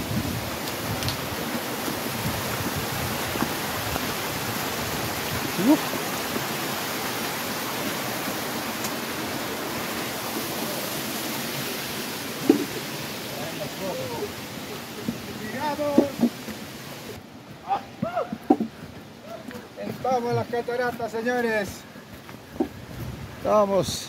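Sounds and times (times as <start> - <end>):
waterfall rushing: 0.0 - 18.4.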